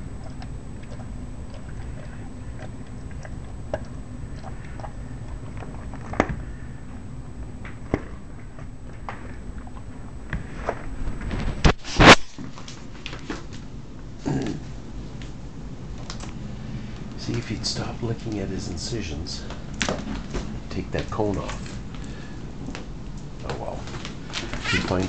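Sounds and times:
dog chewing a treat: 0.0s - 6.7s.

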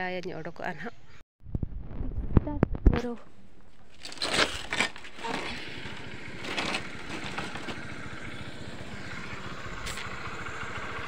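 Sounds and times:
motorcycle engine idling: 4.9s - 11.0s.

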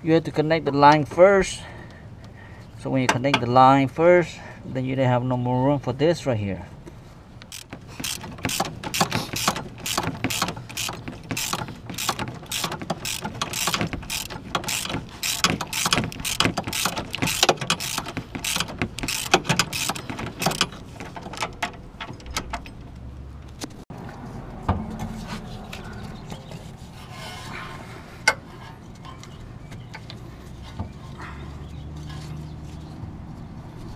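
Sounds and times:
socket ratchet clicking: 7.4s - 22.8s.

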